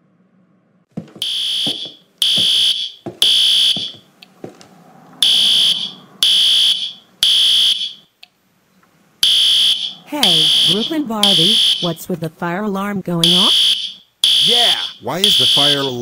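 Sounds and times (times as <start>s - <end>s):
fire alarm blasts: 1.2s - 4.0s, 5.2s - 8.1s, 9.2s - 12.1s, 13.2s - 16.0s.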